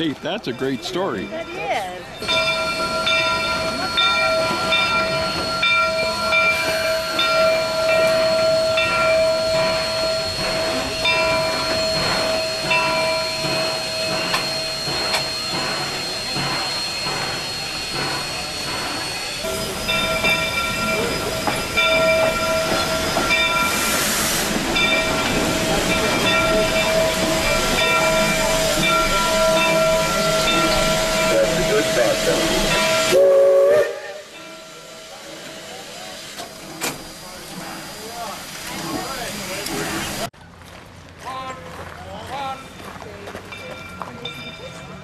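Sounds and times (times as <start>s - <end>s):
locomotive bell ringing: 0.0s - 40.3s, 42.2s - 45.0s
steam hissing: 2.2s - 40.3s.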